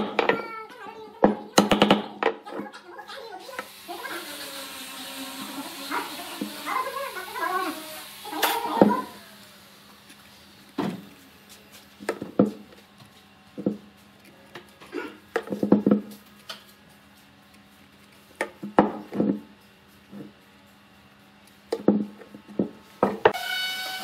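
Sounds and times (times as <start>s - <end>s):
wooden objects knocking on workbench: 15.4s - 16.1s.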